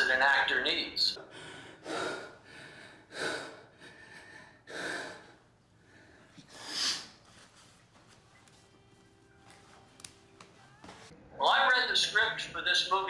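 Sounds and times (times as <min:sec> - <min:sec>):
man breathing hard: 0:01.2 - 0:07.2.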